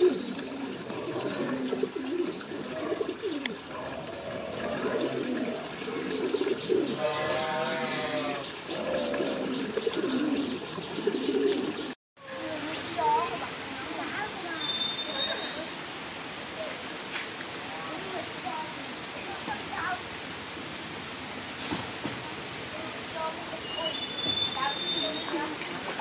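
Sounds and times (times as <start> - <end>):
pigeons cooing: 0.0 - 12.0.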